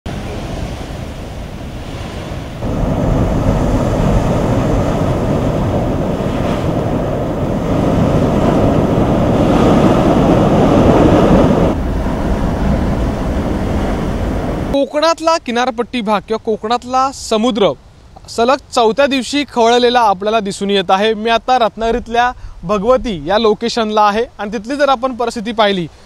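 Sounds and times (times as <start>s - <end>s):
heavy waves breaking on rocks: 0.1s - 15.1s.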